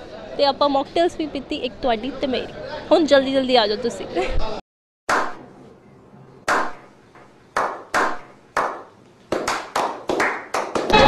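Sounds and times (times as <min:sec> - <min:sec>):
people slow clapping: 0:06.5 - 0:06.8, 0:07.5 - 0:11.0.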